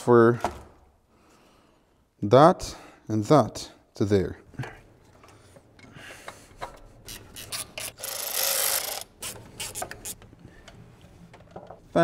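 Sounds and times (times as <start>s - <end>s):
ratchet rasping: 7.1s - 10.2s.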